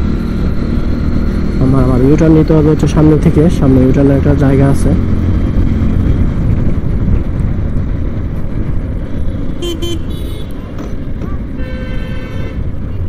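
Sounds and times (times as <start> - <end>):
motorcycle engine rumble: 0.0 - 13.0
wind buffeting microphone: 3.2 - 13.0
vehicle horn toot: 9.6 - 10.6, 11.6 - 13.0.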